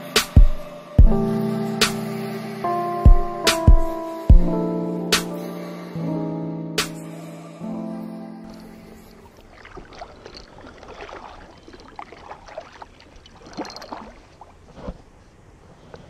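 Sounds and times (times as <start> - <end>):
kayak paddle strokes: 8.5 - 16.0
water dripping off paddle: 9.2 - 15.0.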